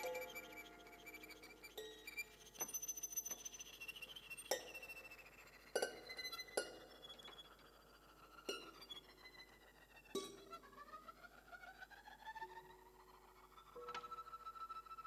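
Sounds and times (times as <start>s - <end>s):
faint high held tones: 0.0s - 5.7s.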